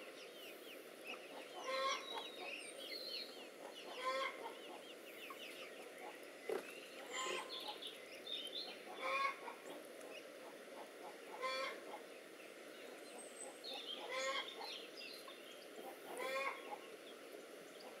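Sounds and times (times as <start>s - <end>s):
poultry calling: 1.1s - 2.6s, 3.4s - 6.2s, 7.0s - 7.9s, 8.6s - 9.8s, 10.4s - 12.1s, 13.4s - 14.8s, 15.8s - 17.0s.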